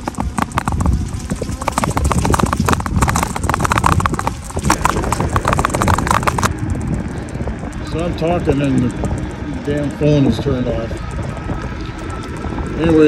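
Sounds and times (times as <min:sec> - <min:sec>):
clicking and rattling: 0:00.0 - 0:13.0
wind buffeting microphone: 0:00.0 - 0:13.0.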